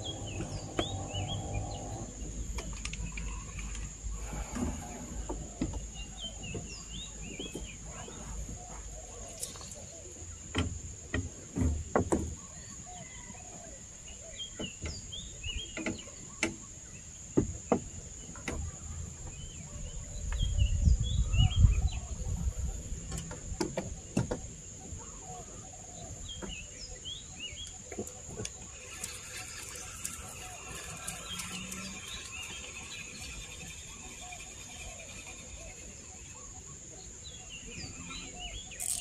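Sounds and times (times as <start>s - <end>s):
small birds chirping: 0.0s - 11.2s, 12.3s - 39.0s
high-pitched insect drone: 28.8s - 36.5s.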